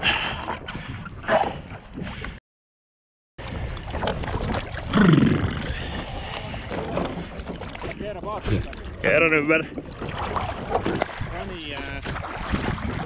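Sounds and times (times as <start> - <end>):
water splashing and gurgling: 3.4 - 13.0.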